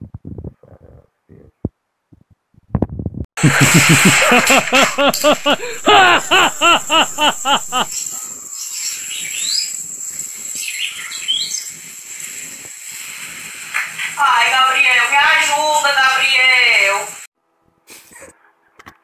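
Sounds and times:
loud high rising-and-falling cries: 0:03.4 - 0:08.0.

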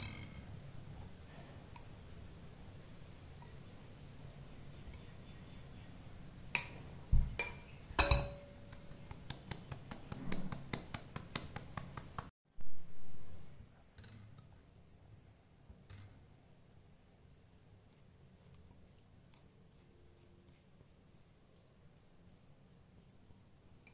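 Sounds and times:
metal sieve clinking on glass bowl: 0:07.4 - 0:08.6.

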